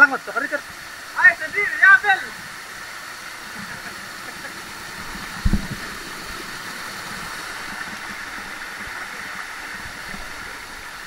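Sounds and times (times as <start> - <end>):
waterfall rushing: 0.0 - 11.0
low thump: 5.4 - 5.9.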